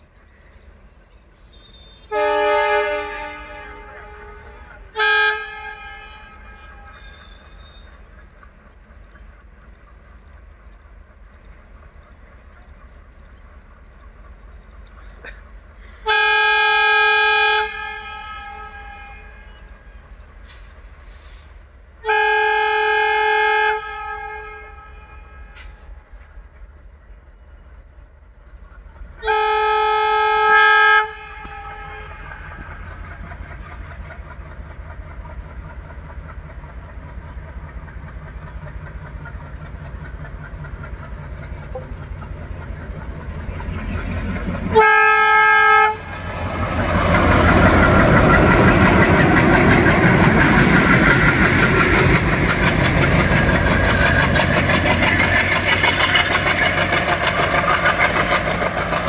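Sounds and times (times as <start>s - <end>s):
diesel locomotive engines: 0.0s - 59.0s
train wheels on rails: 0.0s - 59.0s
locomotive horn blasts: 1.5s - 7.9s, 16.1s - 20.0s, 22.0s - 26.0s, 29.2s - 32.8s, 44.7s - 50.8s.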